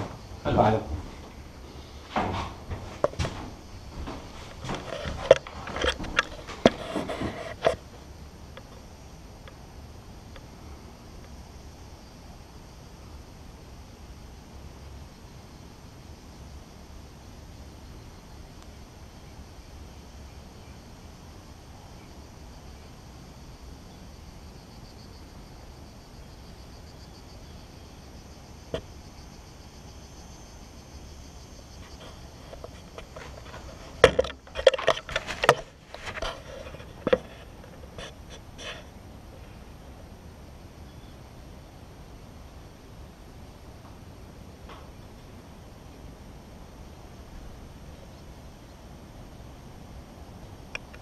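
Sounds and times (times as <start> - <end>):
faint rapid insect chirping: 0.0 - 51.0
knocks and clatters on wood: 2.1 - 7.8, 31.9 - 38.7
faint ticks: 11.2 - 11.8, 50.7 - 51.0.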